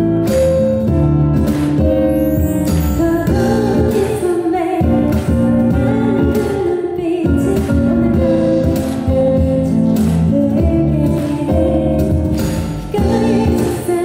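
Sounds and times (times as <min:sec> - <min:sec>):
instrumental accompaniment: 0:00.0 - 0:14.0
woman singing a pop ballad: 0:02.9 - 0:14.0.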